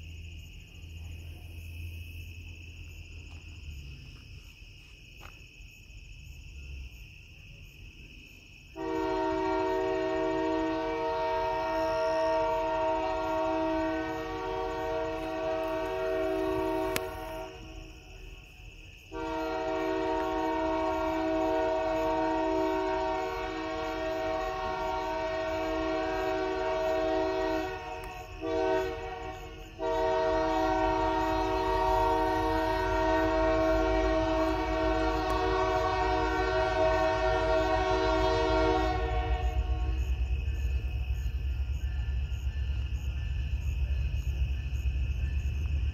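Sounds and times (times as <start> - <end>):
train air horn blasts: 8.8 - 17.8, 19.1 - 40.3
locomotive rumble: 8.8 - 45.9.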